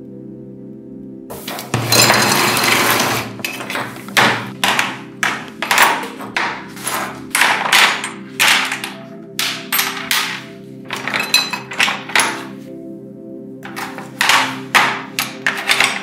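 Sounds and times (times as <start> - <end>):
soft background music: 0.0 - 16.0
metal being struck: 1.3 - 12.6.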